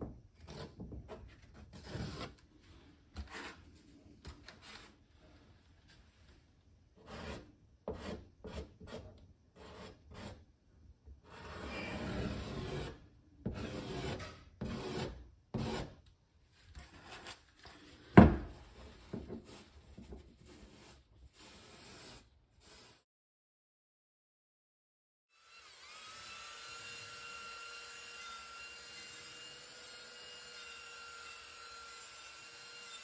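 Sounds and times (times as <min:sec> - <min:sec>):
putty knife scraping filler on wood: 0:00.4 - 0:02.4, 0:07.0 - 0:10.4, 0:11.2 - 0:16.0.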